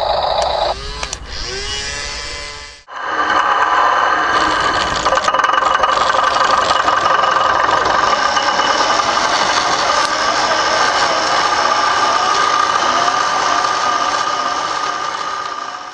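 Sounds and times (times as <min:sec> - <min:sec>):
model tractor running: 0:04.1 - 0:15.9.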